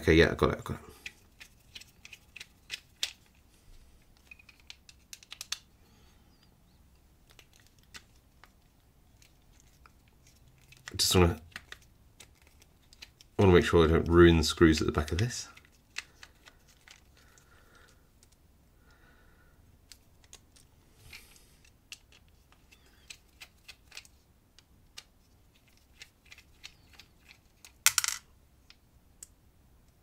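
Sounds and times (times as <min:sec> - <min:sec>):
small metal parts clinking: 0:25.6 - 0:28.2.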